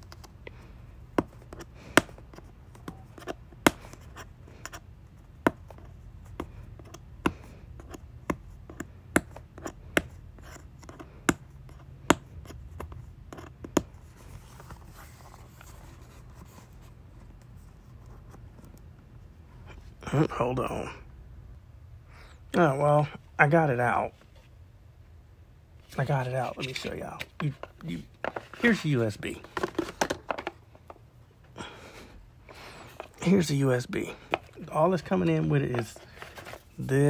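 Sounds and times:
cardboard box rustling: 0:14.0 - 0:18.6, 0:26.0 - 0:30.6, 0:34.2 - 0:37.0.

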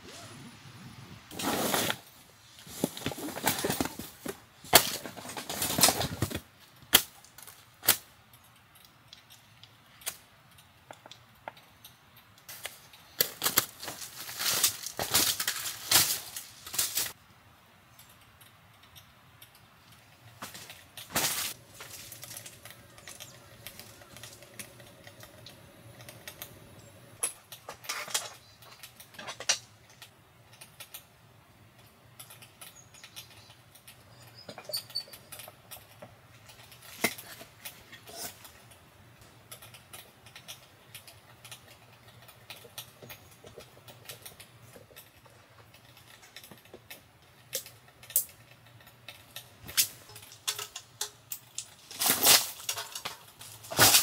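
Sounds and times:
faint steady hum: 0:15.6 - 0:34.2.

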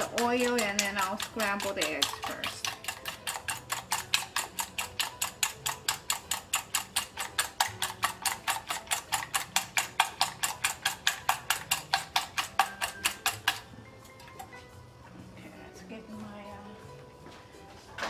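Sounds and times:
wire whisk clicking in metal bowl: 0:00.0 - 0:13.6.

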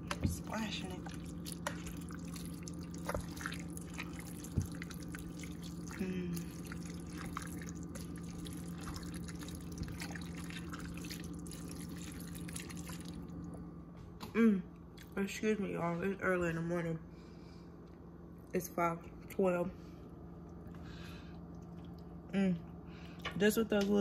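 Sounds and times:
steady low hum: 0:00.0 - 0:24.0
spoon stirring thick stew: 0:00.1 - 0:13.1.

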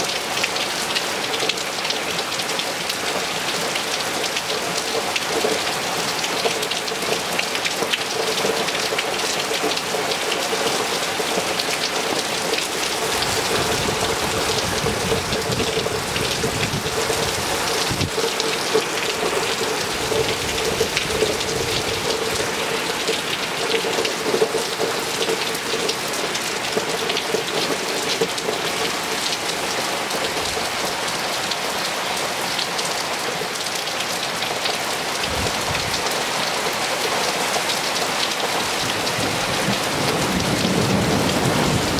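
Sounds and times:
hard rain on water and paving: 0:00.0 - 0:41.9.

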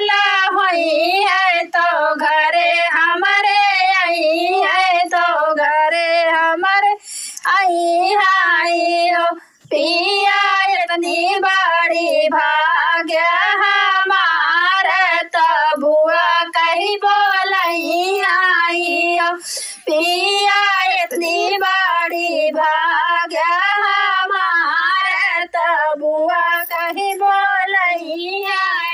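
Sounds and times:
woman singing folk song: 0:00.0 - 0:28.9.

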